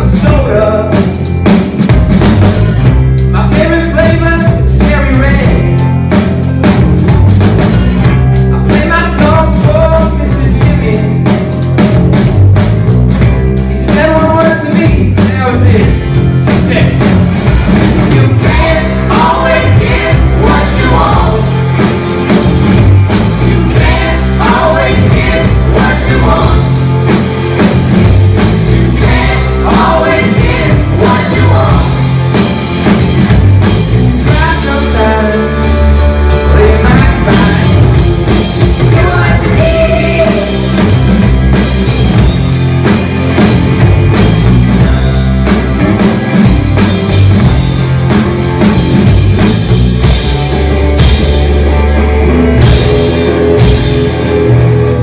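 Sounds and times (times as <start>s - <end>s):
person singing: 0.0s - 1.3s, 3.2s - 5.9s, 8.2s - 11.5s, 18.0s - 22.1s, 23.2s - 27.4s, 28.8s - 32.6s, 34.1s - 40.9s
rock band playing: 0.0s - 55.0s.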